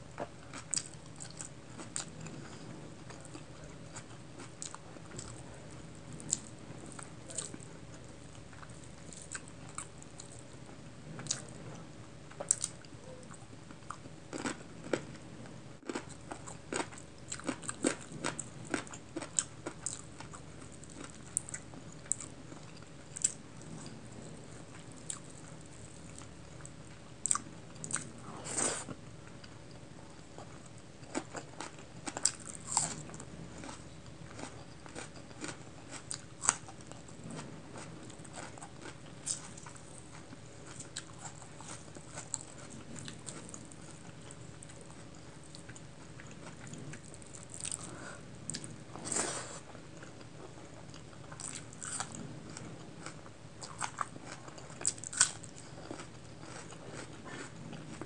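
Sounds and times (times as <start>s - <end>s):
chewing and lip smacks: 50.0s - 58.0s.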